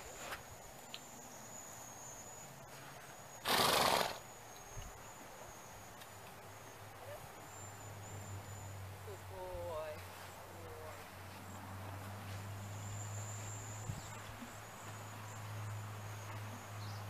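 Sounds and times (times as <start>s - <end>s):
horse snorting: 3.4s - 4.2s.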